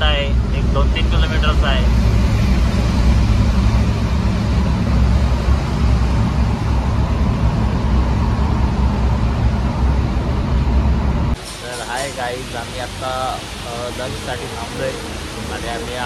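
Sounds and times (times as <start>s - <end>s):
engine and tyre rumble: 0.0s - 16.0s.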